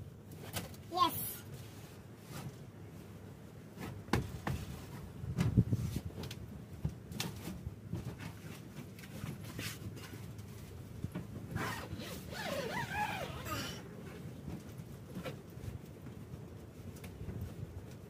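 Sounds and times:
knocks and bumps on bed: 3.8s - 4.7s.

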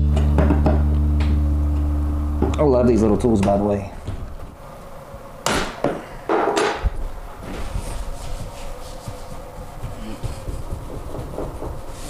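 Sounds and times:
light rubbing: 7.4s - 12.0s.

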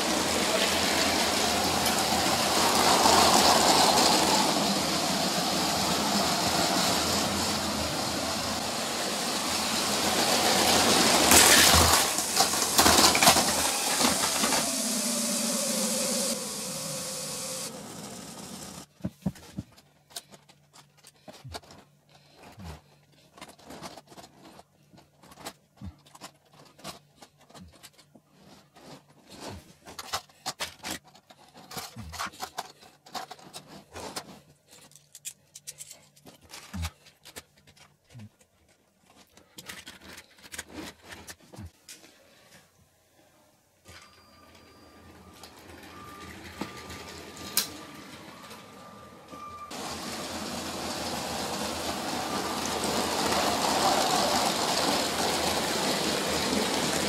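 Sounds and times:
loud steady hiss: 0.0s - 18.9s, 49.7s - 57.0s
toy train bricks clicking and rattling: 0.0s - 18.9s, 23.3s - 41.5s, 49.7s - 57.0s.

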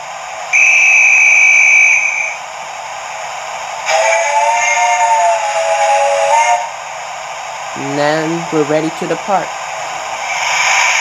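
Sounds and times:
steady hiss: 0.0s - 11.0s
shrill whistle blast: 0.5s - 2.4s
steam whistle chord: 0.5s - 2.4s, 3.8s - 6.7s.

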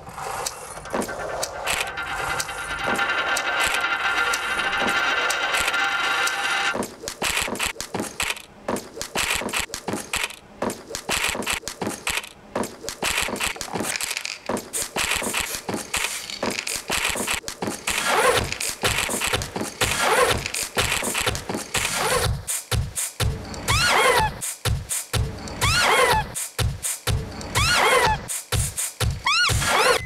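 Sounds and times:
rapid clicking and rattling: 0.4s - 8.4s.

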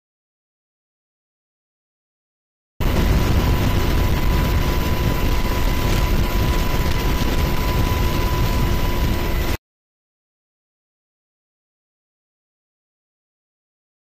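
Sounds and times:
helicopter rumble: 2.8s - 9.6s
thin steady whine: 2.8s - 9.6s.

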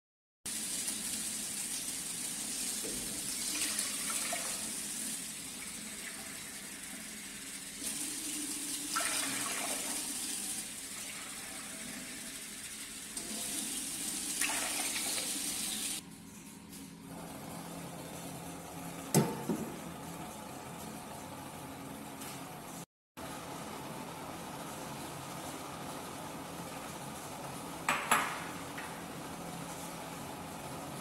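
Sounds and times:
tap water running into saucepan: 0.5s - 16.0s.

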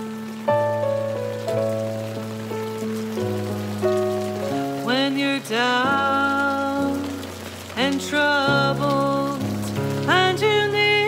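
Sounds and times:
slow piano chords: 0.0s - 11.0s
wordless singing voice: 4.8s - 11.0s.

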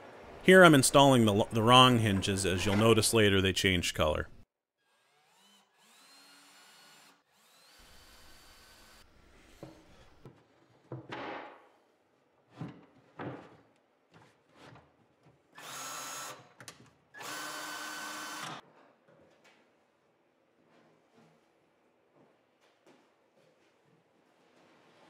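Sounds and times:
cordless drill whining: 17.2s - 18.6s.

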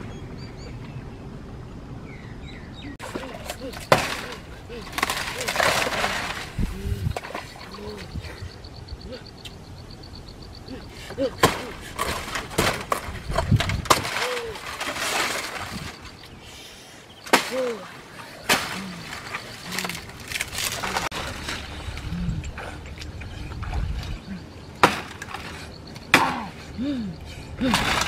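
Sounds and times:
machete chopping dry fronds: 3.0s - 6.6s, 11.2s - 16.0s, 17.2s - 21.7s, 24.8s - 26.5s
dry leaves rustling: 3.0s - 7.6s, 11.8s - 16.4s, 17.3s - 22.1s.

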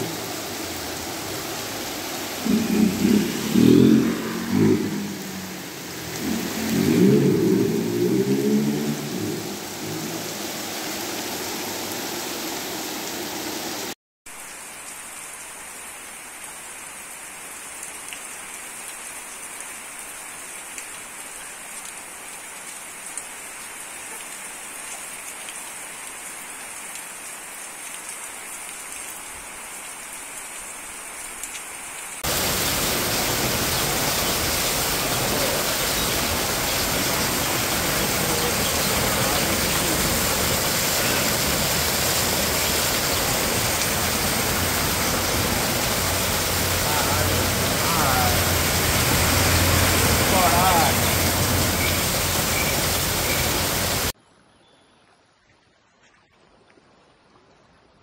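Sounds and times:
rain falling on street: 0.0s - 54.2s.

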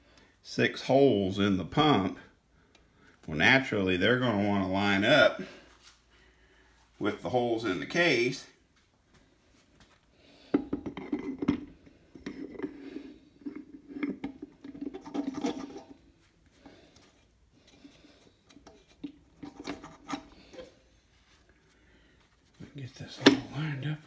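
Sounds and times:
metal scraping on metal: 12.2s - 16.0s, 18.6s - 20.8s.

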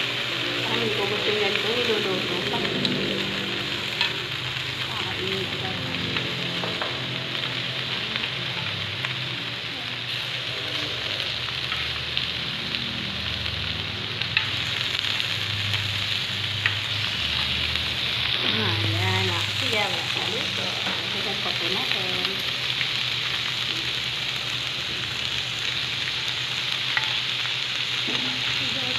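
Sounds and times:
meat sizzling in grill pan: 0.0s - 28.9s
metal tongs clicking on pan: 26.9s - 27.2s.

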